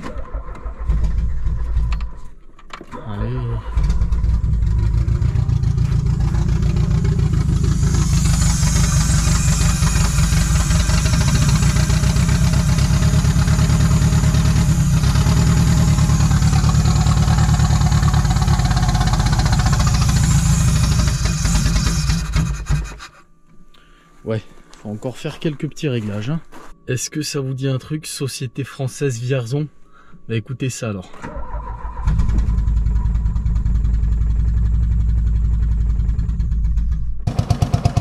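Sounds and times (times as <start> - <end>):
car engine fast idle: 3.8 - 23.0, 31.4 - 38.0.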